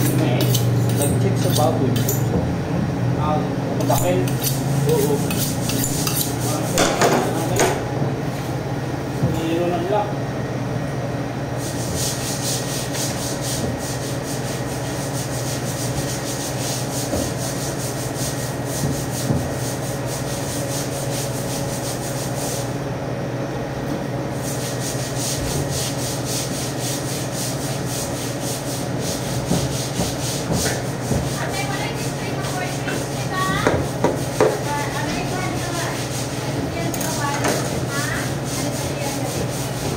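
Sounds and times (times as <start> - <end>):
knife scraping and cutting pork: 0.0 - 2.3, 3.8 - 7.8, 24.4 - 39.9.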